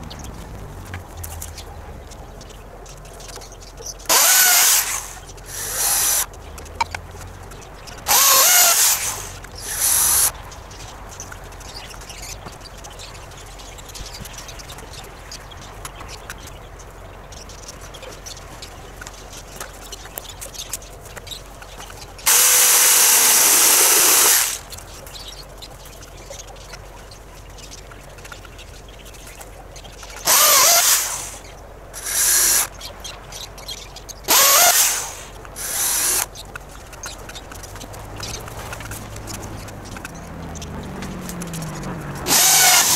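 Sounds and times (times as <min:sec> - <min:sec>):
power drill whirring: 0:04.1 - 0:06.3, 0:08.1 - 0:10.3, 0:22.3 - 0:24.6, 0:30.2 - 0:32.7, 0:34.3 - 0:36.3, 0:42.2 - 0:42.9.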